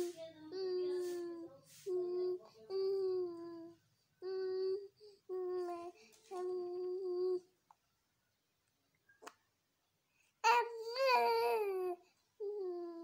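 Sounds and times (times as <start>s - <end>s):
baby cooing and babbling: 2.0s - 7.5s, 10.4s - 13.0s.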